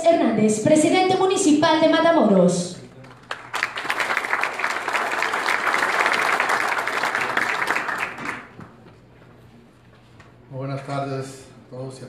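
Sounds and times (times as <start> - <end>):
audience applauding: 3.0 - 8.8.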